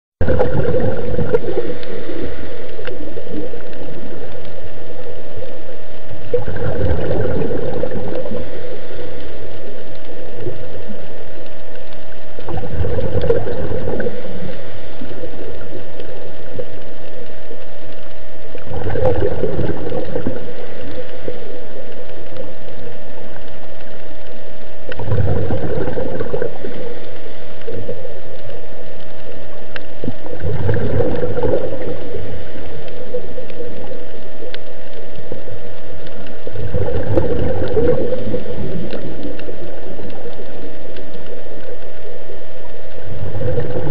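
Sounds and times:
exhaled bubbles gurgling underwater: 0:00.2 - 0:43.9
steady hum: 0:00.2 - 0:43.9.

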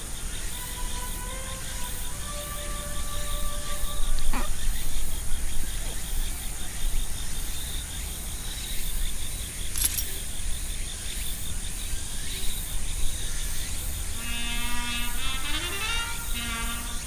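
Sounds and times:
background music: 0:00.0 - 0:04.6, 0:14.2 - 0:17.0
insects chirping: 0:00.0 - 0:17.0
brief rustle: 0:09.6 - 0:10.4.

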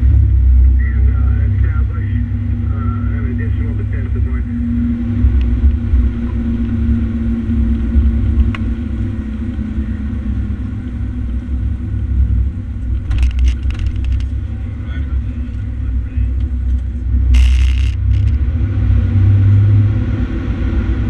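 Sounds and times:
fire engine driving: 0:00.0 - 0:21.0
sharp clicks: 0:16.4 - 0:18.4.

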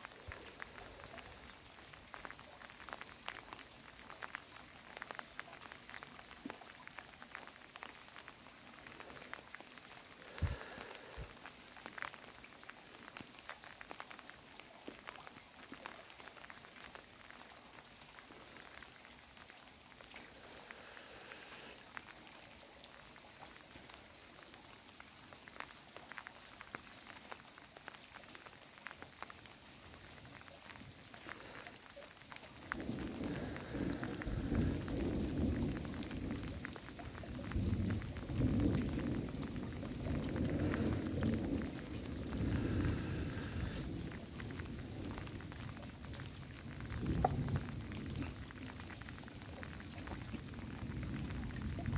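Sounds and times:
raindrops clicking: 0:00.0 - 0:22.2, 0:22.9 - 0:51.9
rain falling: 0:00.0 - 0:51.9
thunder rumbling: 0:32.7 - 0:45.4.

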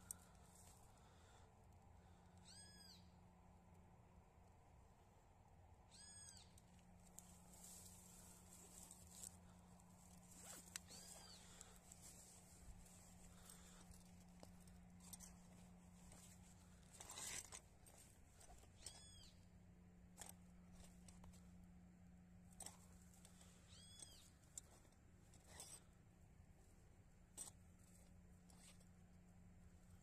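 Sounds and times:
low steady hum: 0:00.0 - 0:30.0
rustling handling noises: 0:06.7 - 0:19.3.

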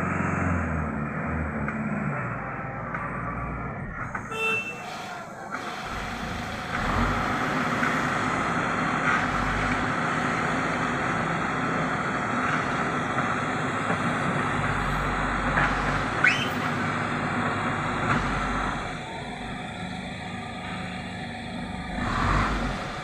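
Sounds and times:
diesel engine under load: 0:00.0 - 0:23.0
short rising squeak: 0:16.2 - 0:16.7.

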